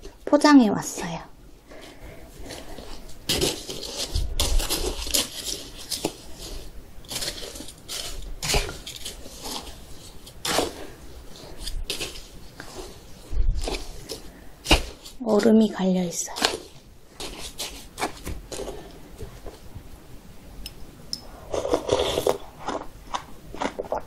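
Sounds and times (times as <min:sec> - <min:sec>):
chopsticks stirring shaved ice: 0:02.4 - 0:15.2, 0:15.8 - 0:19.0.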